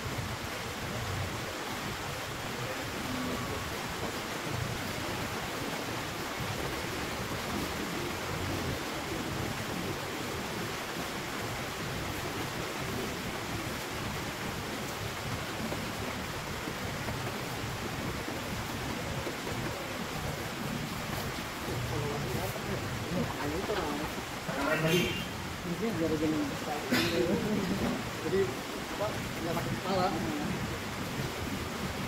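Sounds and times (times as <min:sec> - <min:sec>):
steady even hiss: 0:00.1 - 0:32.0.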